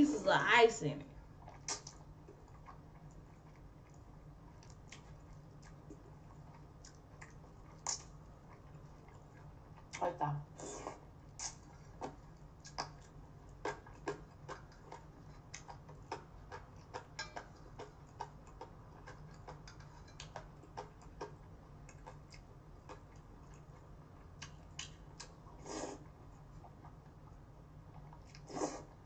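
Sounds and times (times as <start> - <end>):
low steady hum: 0.0 - 29.0
chopsticks clicking in a metal bowl: 17.2 - 17.5.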